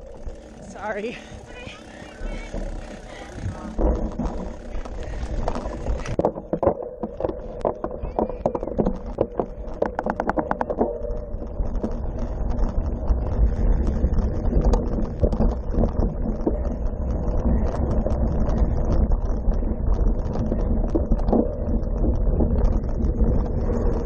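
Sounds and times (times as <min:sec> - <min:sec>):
bike rattling over bumpy grass: 0:00.0 - 0:24.0
bike wheel ticking: 0:00.0 - 0:24.0
low wind rumble: 0:00.0 - 0:24.0.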